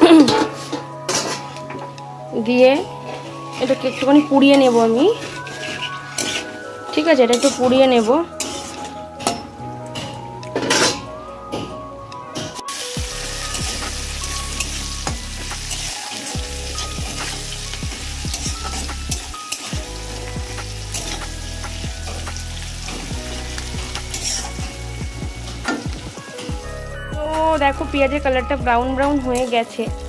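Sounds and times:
onions sizzling in hot oil: 0.1 - 9.0, 12.7 - 30.0
spatula scraping a pan: 0.2 - 1.7, 3.0 - 11.0, 20.9 - 24.8.

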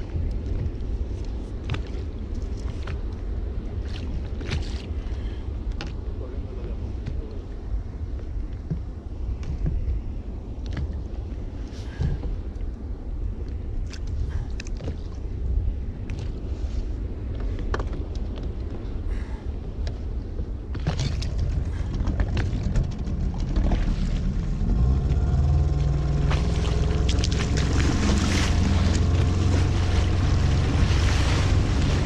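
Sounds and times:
wind: 0.0 - 32.0
rushing water: 20.9 - 32.0
outboard motor revving: 21.2 - 32.0.

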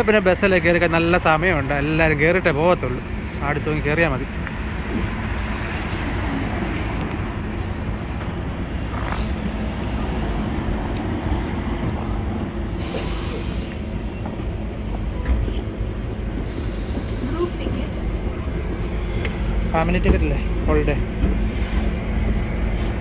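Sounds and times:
bus engine idling: 0.0 - 23.0
air release hiss: 12.8 - 14.0.

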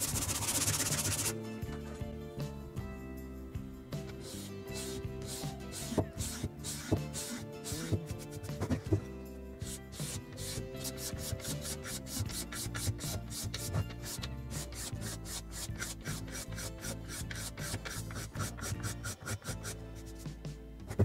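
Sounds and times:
sandpaper rubbing on wood: 0.0 - 1.4, 4.2 - 8.8, 9.6 - 20.2
background music: 0.0 - 21.0.

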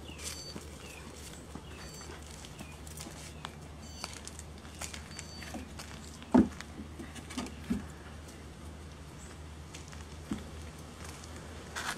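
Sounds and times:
dog paws pattering on paving: 0.0 - 11.9.

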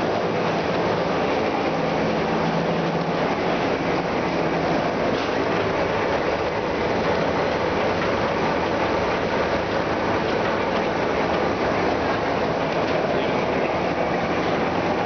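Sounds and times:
printing machine running: 0.0 - 15.0.

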